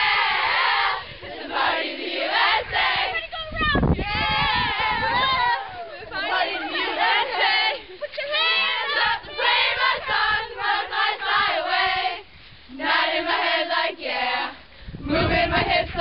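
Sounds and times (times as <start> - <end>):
children singing together: 8.5 - 12.2.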